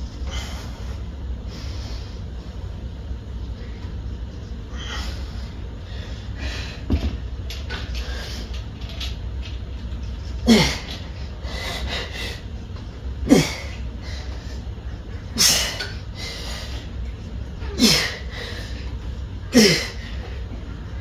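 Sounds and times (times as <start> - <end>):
person grunting with exertion: 10.4 - 10.9, 13.2 - 13.8, 19.5 - 20.0.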